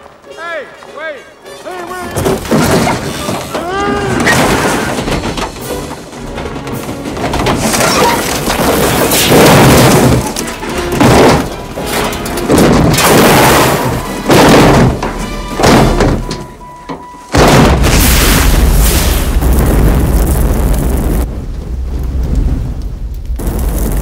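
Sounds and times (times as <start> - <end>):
car crashing down rocks: 2.2 - 21.3
loud explosion: 8.6 - 10.3, 17.4 - 24.0
dramatic orchestral music: 10.4 - 13.0.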